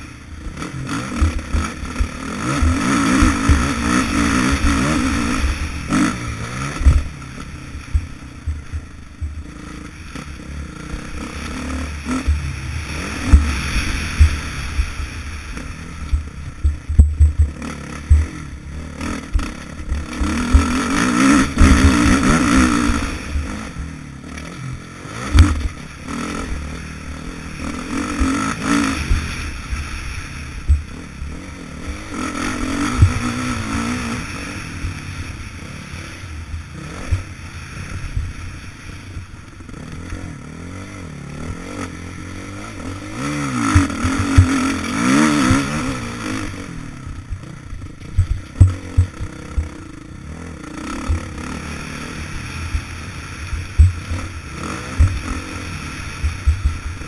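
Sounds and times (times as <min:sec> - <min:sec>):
motocross bike engine revving: 0:00.0 - 0:57.0
sharp knocks and clatter: 0:16.6 - 0:18.3, 0:48.1 - 0:49.7.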